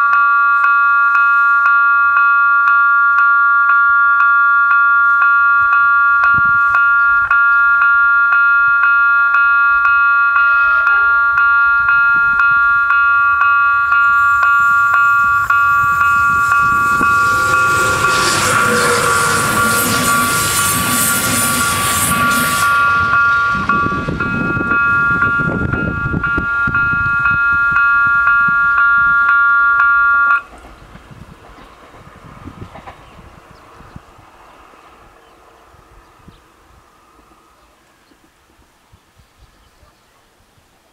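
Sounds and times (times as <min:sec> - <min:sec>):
level crossing warning bells: 0:00.0 - 0:30.5
passenger train passing: 0:01.3 - 0:38.9.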